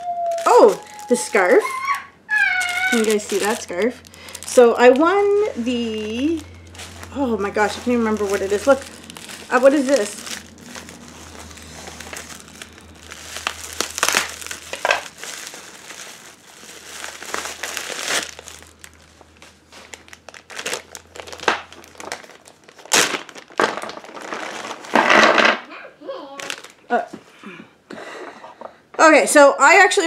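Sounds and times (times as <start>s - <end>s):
bubble wrap crinkling: 0.0s - 25.6s, 26.2s - 27.2s.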